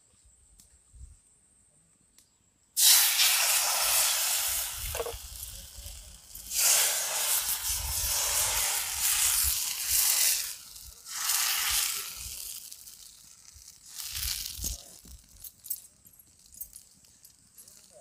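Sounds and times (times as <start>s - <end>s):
batter sizzling on hot pan: 2.8s - 18.0s.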